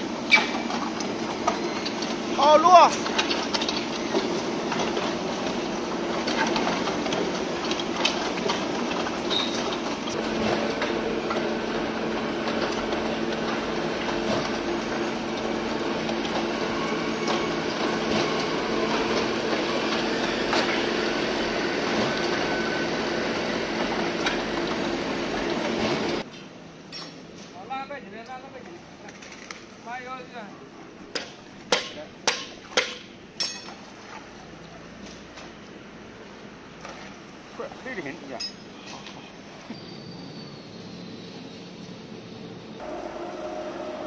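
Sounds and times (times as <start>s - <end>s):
concrete mixer pump humming: 0.0s - 26.3s, 30.3s - 44.0s.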